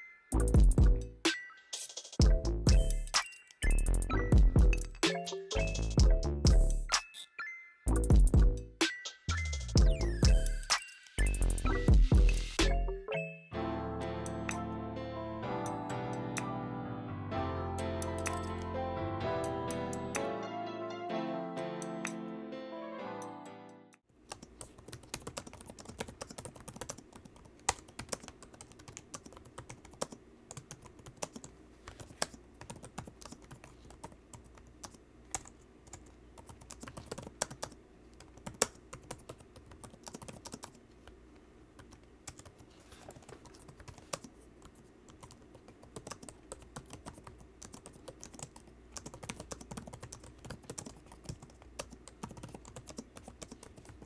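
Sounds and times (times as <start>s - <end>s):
laptop keyboard typing: 18.0s - 18.7s, 24.2s - 41.2s, 41.8s - 54.0s.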